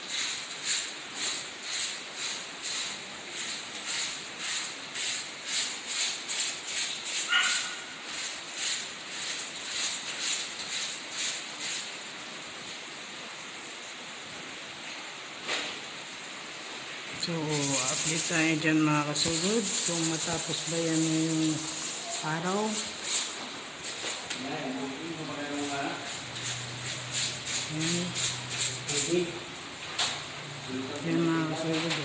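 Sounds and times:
hand tool swishing on plaster: 0.0 - 11.9, 17.5 - 24.3, 25.4 - 29.3.

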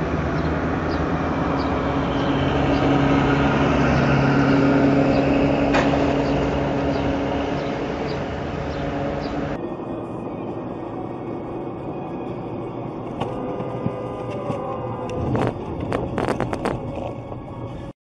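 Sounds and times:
street traffic hum: 0.0 - 17.9.

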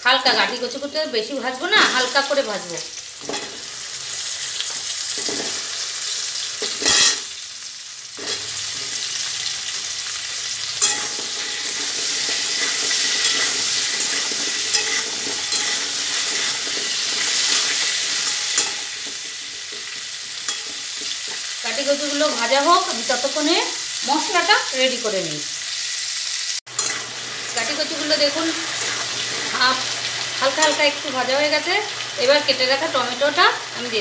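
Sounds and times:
food frying in oil: 0.0 - 34.0
metal spatula scraping pan: 6.6 - 7.3, 10.8 - 21.5, 28.4 - 29.6.

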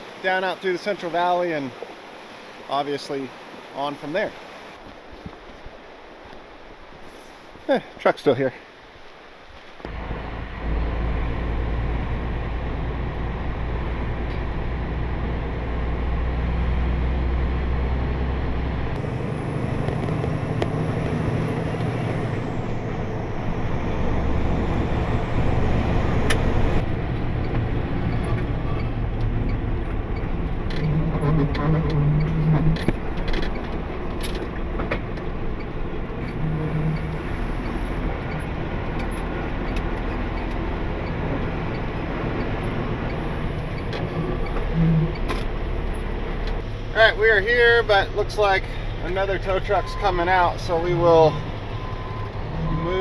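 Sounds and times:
tow truck diesel engine drone: 9.9 - 53.0.

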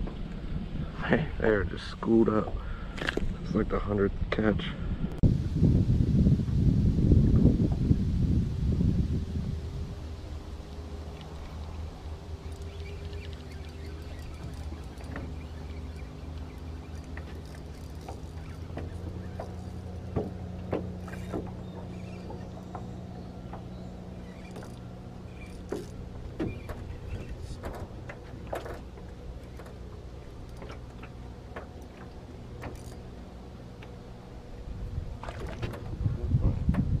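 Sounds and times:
wind buffeting microphone: 0.0 - 37.0
small electric motor humming: 8.3 - 34.6
fishing reel clicking: 12.4 - 19.8, 24.2 - 27.0.

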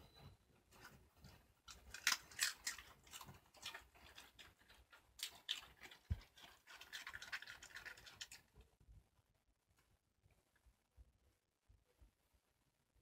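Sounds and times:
dogs crunching cabbage leaves: 0.8 - 8.5.

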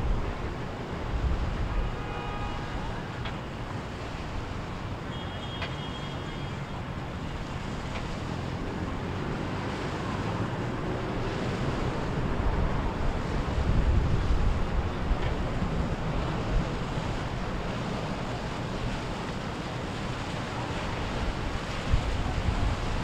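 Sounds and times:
surf: 0.0 - 23.0
wind buffeting microphone: 7.3 - 23.0.

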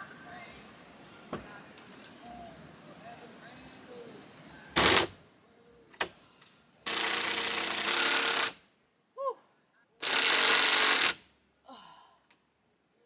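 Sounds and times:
cordless drill running: 6.9 - 8.6, 10.0 - 11.2.

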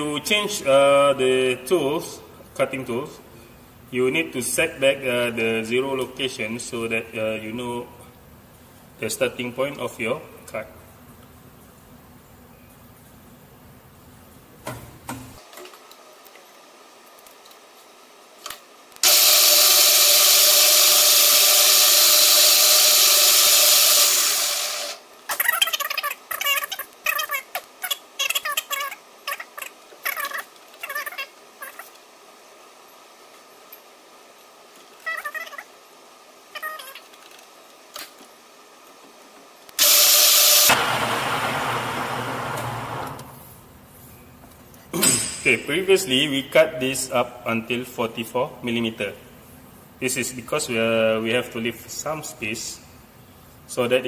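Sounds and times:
lathe running with whine: 19.0 - 25.0, 39.8 - 43.4.

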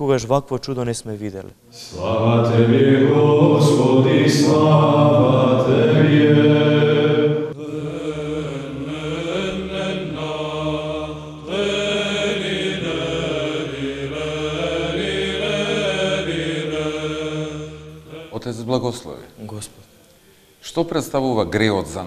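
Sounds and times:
church chant: 1.7 - 19.6.

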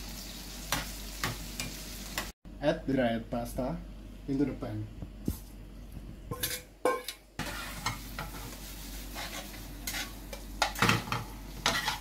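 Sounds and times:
spaghetti sizzling in pan: 0.0 - 2.4, 7.4 - 12.0
spatula scraping pan: 6.4 - 12.0.

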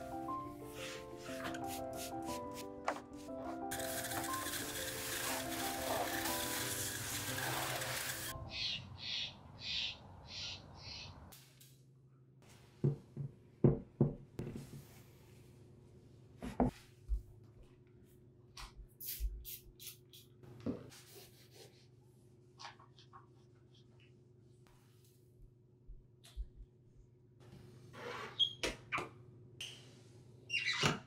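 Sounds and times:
cloth wiping glass: 0.1 - 2.6.

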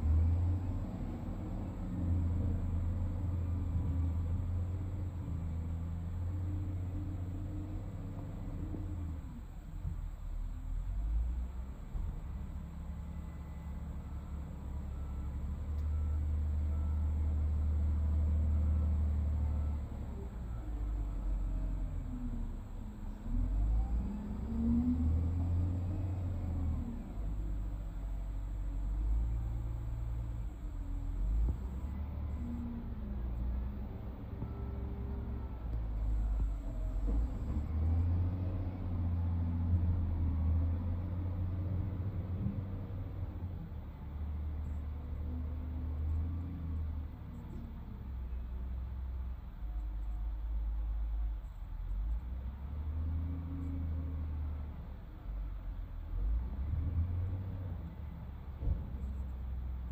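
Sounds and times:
excavator diesel engine rumbling: 0.0 - 59.9.

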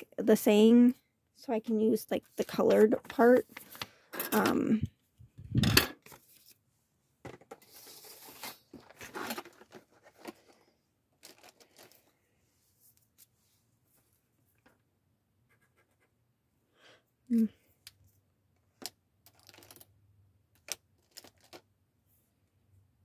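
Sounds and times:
paper rustling and scratching: 7.6 - 10.6.

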